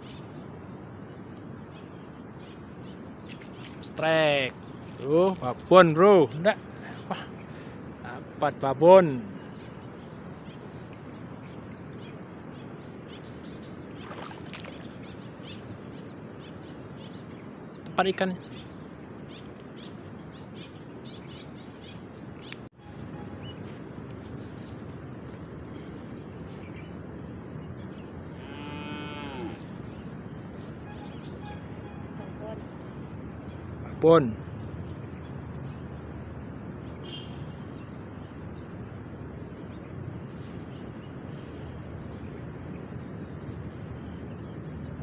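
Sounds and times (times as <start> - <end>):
rustle: 0.0 - 33.6, 34.2 - 45.0
outdoor background noise: 0.0 - 45.0
cow mooing: 28.4 - 29.7.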